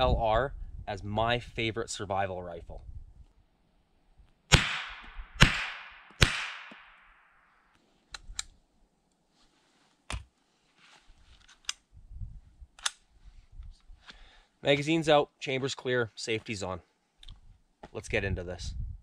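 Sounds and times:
rifle shots with echo: 0:04.5 - 0:07.4
rifle handling clicks: 0:12.8 - 0:13.0.

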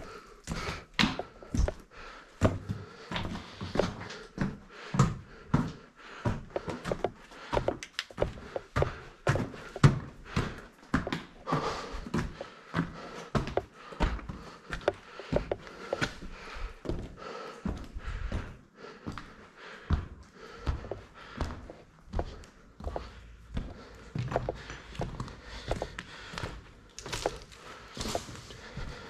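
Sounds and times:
footsteps on rocky gravel: 0:24.5 - 0:29.0.

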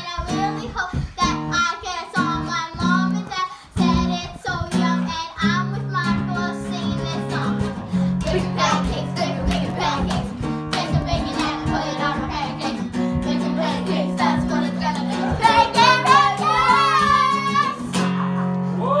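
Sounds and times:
upbeat song with strummed guitar: 0:00.0 - 0:18.8
children singing: 0:06.5 - 0:18.0.

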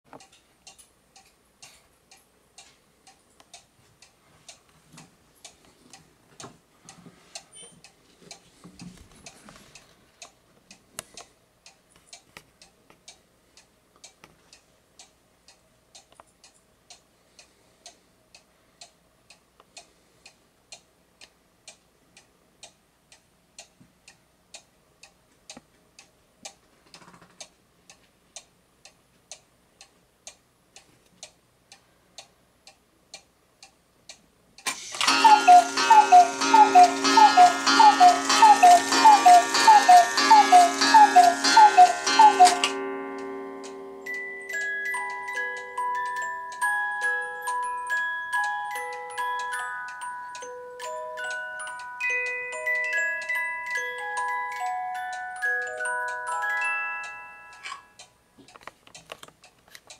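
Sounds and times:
clock ticking: 0:00.1 - 0:59.9
music box tune: 0:34.7 - 0:58.2.

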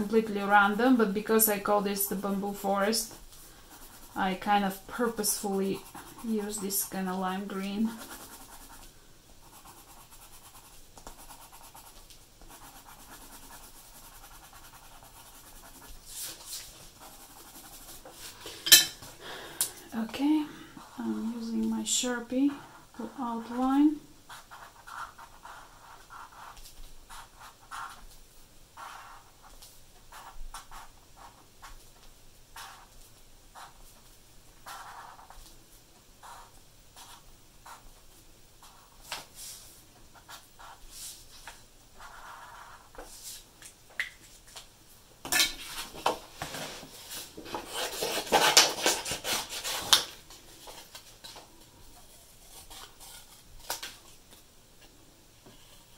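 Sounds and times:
coloured pencil scratching on paper: 0:00.4 - 0:18.3, 0:23.2 - 0:28.0, 0:28.8 - 0:31.7, 0:32.6 - 0:32.9, 0:33.6 - 0:33.8, 0:34.6 - 0:35.4, 0:36.2 - 0:37.8, 0:40.2 - 0:41.1, 0:42.0 - 0:43.1, 0:47.5 - 0:50.0.

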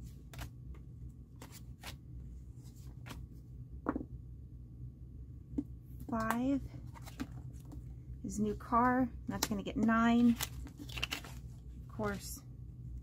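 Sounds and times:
banknotes rustling: 0:01.4 - 0:02.0, 0:08.7 - 0:12.3.

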